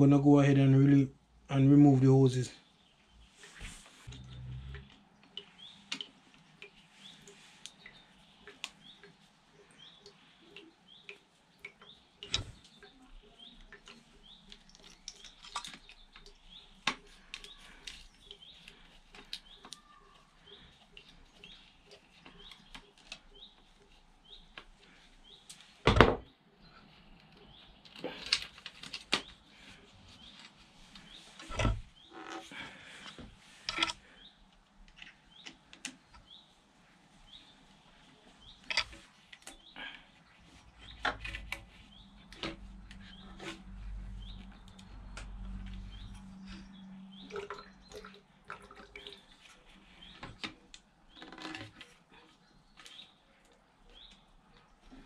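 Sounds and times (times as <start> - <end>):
small bird chirping: 2.7 - 25.5, 40.8 - 51.2, 52.1 - 55.0
hand tools and hose clamps clicking: 31.4 - 34.0.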